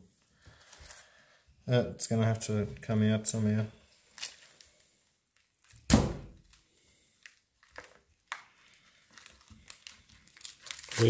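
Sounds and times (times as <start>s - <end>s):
heavy thunk: 5.9s - 6.4s.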